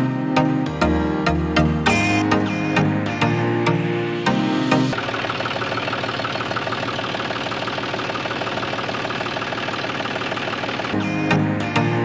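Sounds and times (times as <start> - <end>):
miniature tractor engine chugging: 5.0 - 11.0.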